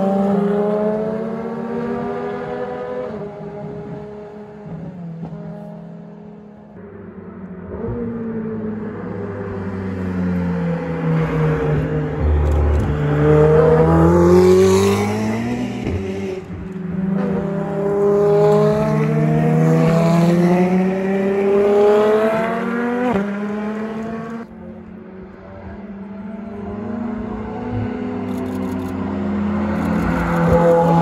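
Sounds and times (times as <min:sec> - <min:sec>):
racing car engines at full throttle: 0:00.0 - 0:31.0.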